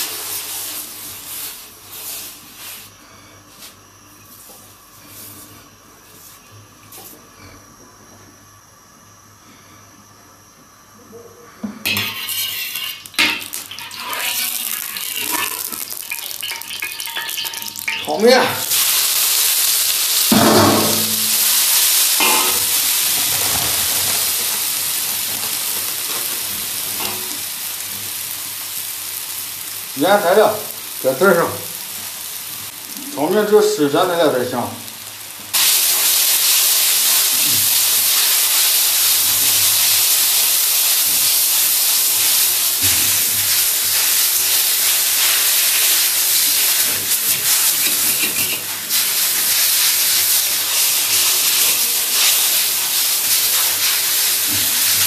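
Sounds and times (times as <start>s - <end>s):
water hissing on hot metal: 0.0s - 3.8s, 11.8s - 55.0s
cloth rubbing in a wok: 0.0s - 7.2s, 43.2s - 55.0s
noodles sizzling in a wok: 0.0s - 7.2s, 11.8s - 55.0s.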